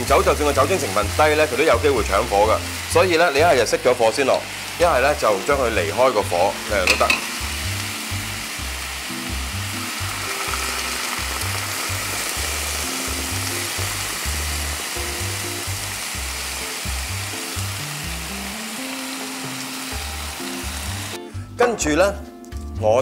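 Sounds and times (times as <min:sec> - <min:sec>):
beef and vegetables sizzling in pan: 0:00.0 - 0:21.3
background music with bass line: 0:00.0 - 0:23.0
wine pouring into pan: 0:06.7 - 0:16.1.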